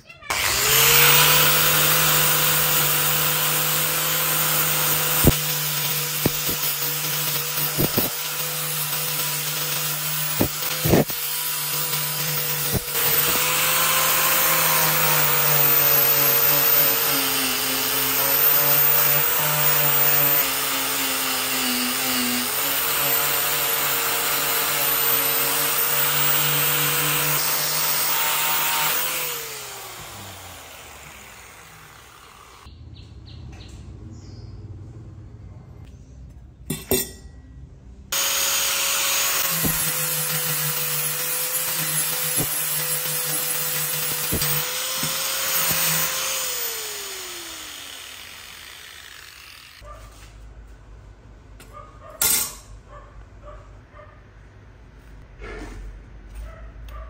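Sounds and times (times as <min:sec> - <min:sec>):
motor winding down: 0:00.3 - 0:04.1, 0:38.2 - 0:49.8
power tool running: 0:00.3 - 0:32.7, 0:38.1 - 0:49.8.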